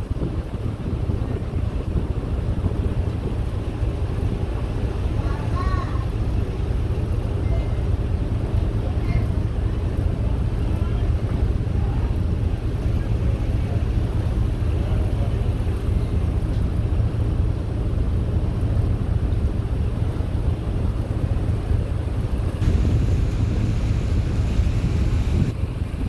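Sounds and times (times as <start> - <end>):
wind buffeting microphone: 0.0 - 7.4, 8.0 - 26.0
ferry engine droning: 0.0 - 26.0
high hiss: 22.6 - 25.5.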